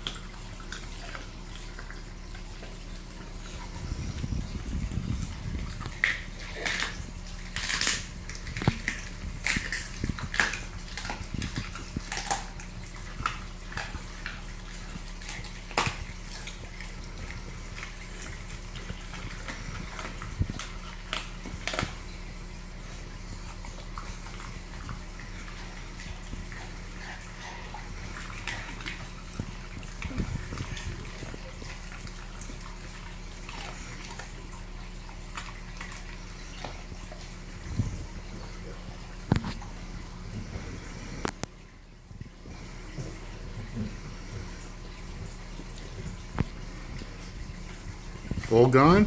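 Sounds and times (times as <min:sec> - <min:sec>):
dog chewing with wet smacking: 0:00.0 - 0:49.0
sharp bone cracks: 0:05.9 - 0:12.6.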